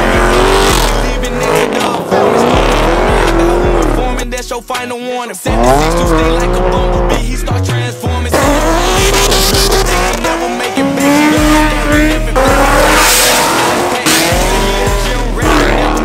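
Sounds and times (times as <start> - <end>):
car engines revving hard: 0.0 - 4.4, 5.5 - 7.4, 8.2 - 16.0
rap music with heavy bass: 0.0 - 16.0.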